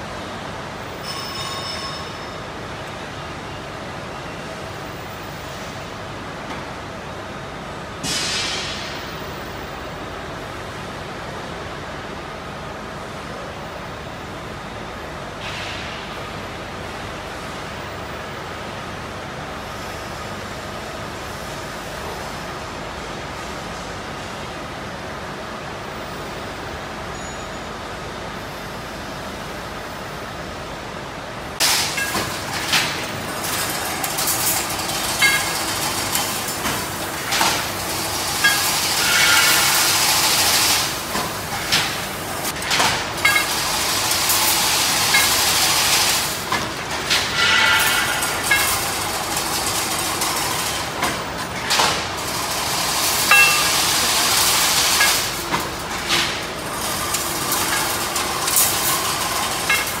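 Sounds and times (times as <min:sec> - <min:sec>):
fence weaving machine running: 0:31.5 - 1:00.0
sharp metallic clanks: 0:31.6 - 0:42.0, 0:42.6 - 0:52.0, 0:53.0 - 1:00.0.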